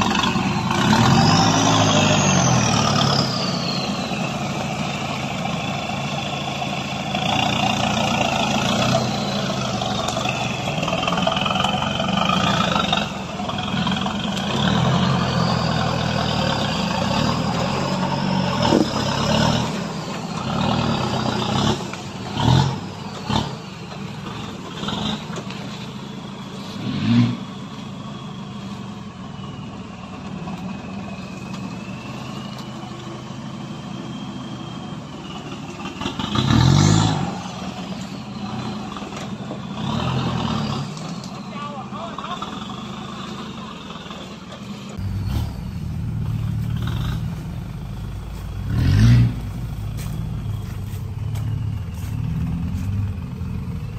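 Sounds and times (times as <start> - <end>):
truck engine running and revving: 0.0 - 53.9
truck knocks and clunks: 6.6 - 26.0, 43.9 - 53.9.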